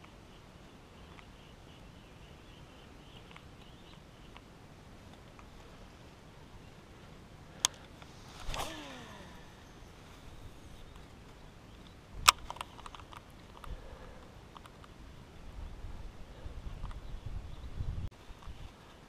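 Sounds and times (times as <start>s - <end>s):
fishing reel spool whirring: 8.4s - 9.7s.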